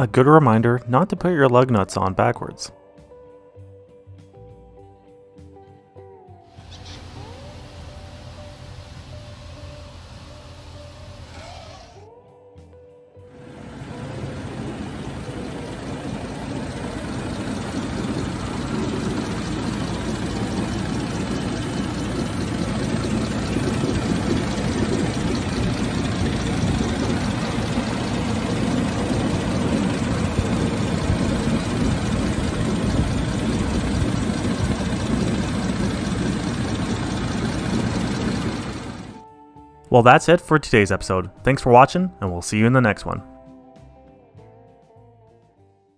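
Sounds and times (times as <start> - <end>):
car engine idling: 6.6 - 11.4, 13.4 - 39.2.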